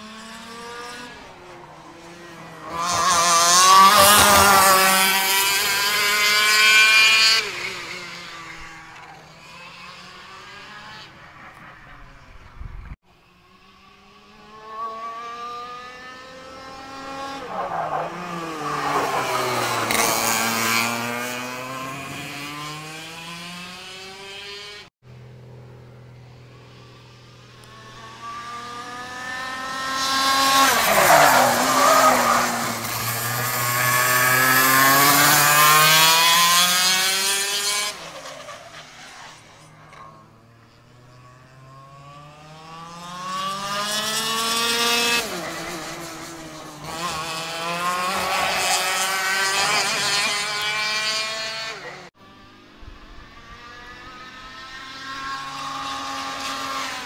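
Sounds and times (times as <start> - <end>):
kart engine revving past: 0.0 - 12.6, 13.2 - 57.0.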